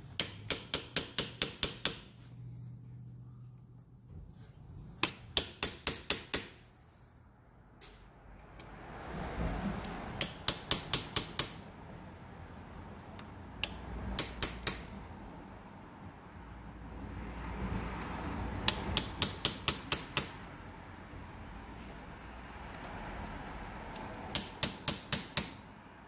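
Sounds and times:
hammer tapping steel punch: 0:00.2 - 0:02.1, 0:05.0 - 0:06.6, 0:10.2 - 0:11.6, 0:13.2 - 0:15.0, 0:18.7 - 0:20.4, 0:23.9 - 0:25.6.

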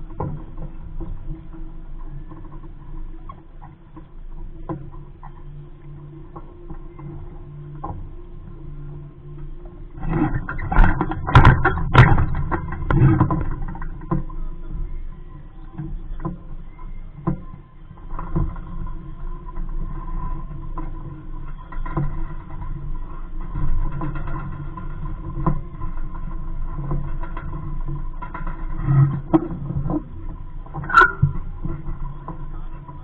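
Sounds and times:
wind rumbling on microphone: 0:00.0 - 0:33.0
boat knocks: 0:10.3 - 0:15.0.

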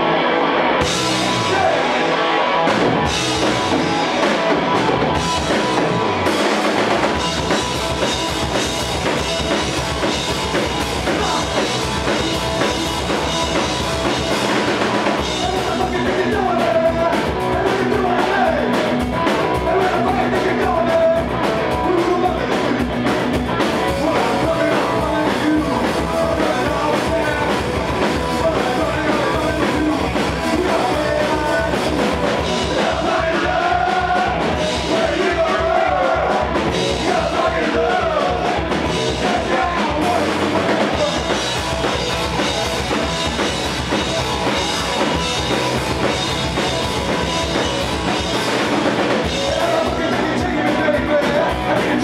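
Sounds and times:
live rock band playing: 0:00.0 - 0:52.0
person singing: 0:15.2 - 0:22.8, 0:23.6 - 0:41.4, 0:49.2 - 0:52.0.

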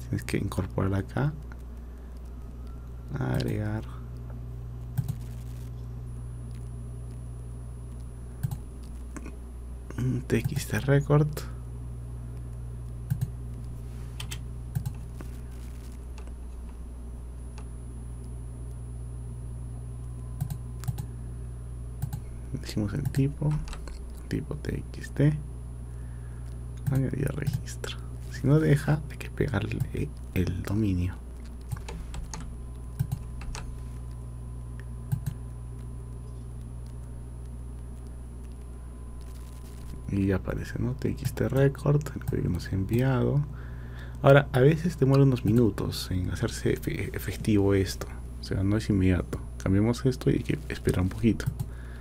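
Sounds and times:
low electrical hum: 0:00.0 - 0:52.0
computer mouse clicks: 0:04.9 - 0:05.5, 0:08.0 - 0:09.2, 0:13.1 - 0:13.3, 0:14.2 - 0:15.3, 0:20.4 - 0:21.1, 0:22.0 - 0:22.3, 0:23.0 - 0:24.0, 0:31.6 - 0:33.7, 0:35.1 - 0:35.4, 0:45.1 - 0:45.7
keyboard keystrokes: 0:31.7 - 0:33.6.

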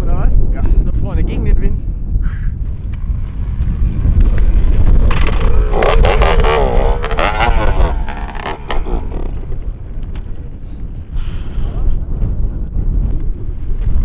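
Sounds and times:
wind noise on microphone: 0:00.0 - 0:14.0
motorbike engine sputtering and popping: 0:02.6 - 0:10.6.

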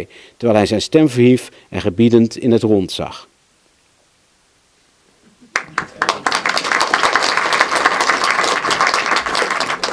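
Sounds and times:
audience clapping: 0:05.5 - 0:09.9.

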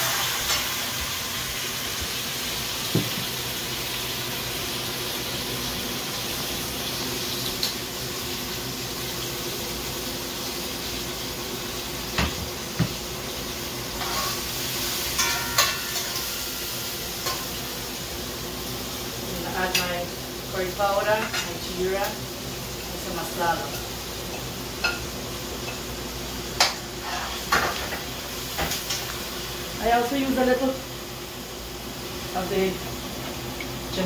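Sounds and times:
onion and garlic sizzling in oil: 0:00.0 - 0:34.0
pot lids and spoon clinking: 0:15.2 - 0:16.3.

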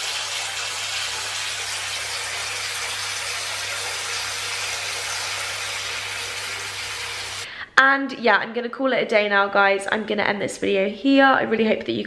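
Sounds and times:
tap running into bathtub: 0:00.0 - 0:07.5.

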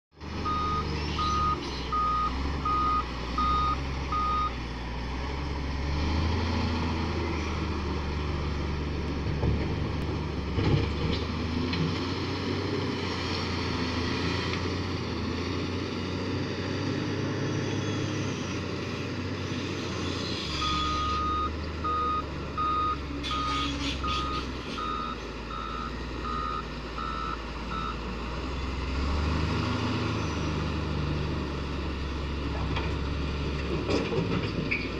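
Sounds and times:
wheel loader diesel engine: 0:00.1 - 0:34.9
reversing alarm beeps: 0:00.4 - 0:04.6, 0:20.6 - 0:28.0.

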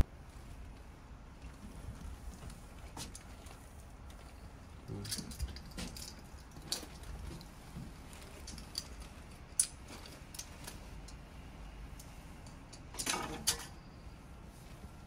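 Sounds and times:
low steady rumble: 0:00.0 - 0:15.0
light clicks and small rattles: 0:01.4 - 0:11.3.

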